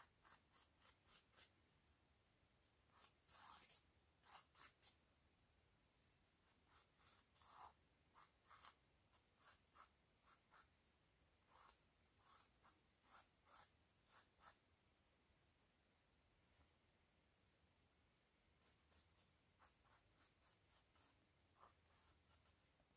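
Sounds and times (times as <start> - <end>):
pencil sketching on canvas: 0.0 - 1.5, 2.9 - 5.0, 6.4 - 10.7, 11.4 - 14.6, 18.6 - 22.7.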